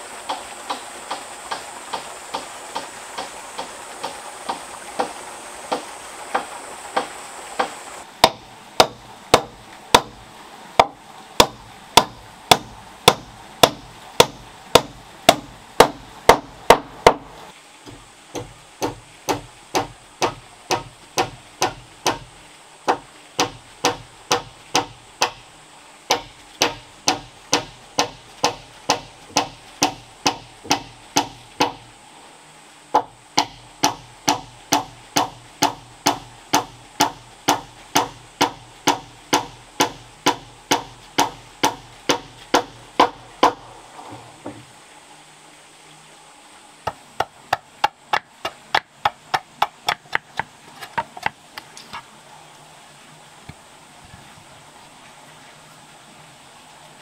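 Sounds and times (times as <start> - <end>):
hammering on wood: 0.3 - 10.2, 10.8 - 17.3, 17.9 - 22.3, 22.9 - 25.4, 26.1 - 31.9, 33.0 - 43.6, 46.9 - 51.4.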